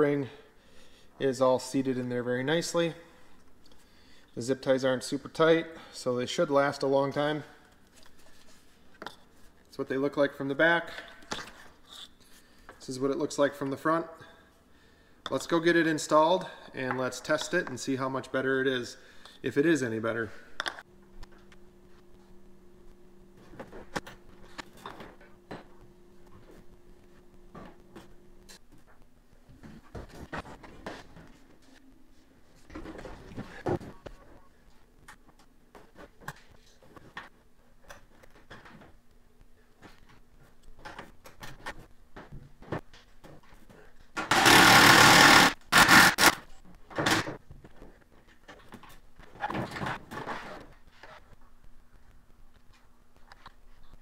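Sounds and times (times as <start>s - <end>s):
steady low hum: 18.0s - 41.2s
power driver running: 44.3s - 46.4s.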